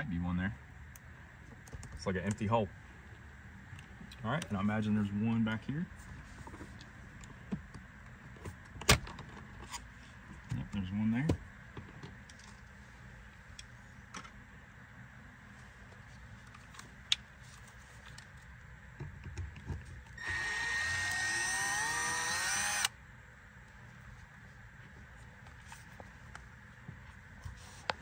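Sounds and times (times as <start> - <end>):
power screwdriver whining: 20.2 - 22.9.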